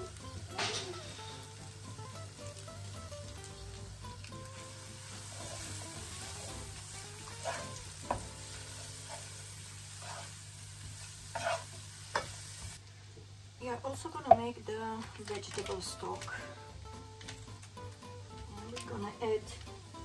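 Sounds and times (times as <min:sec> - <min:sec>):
food sizzling in a pan: 0:00.0 - 0:12.8, 0:14.0 - 0:20.0
wooden spoon knocking a pan: 0:07.4 - 0:08.5.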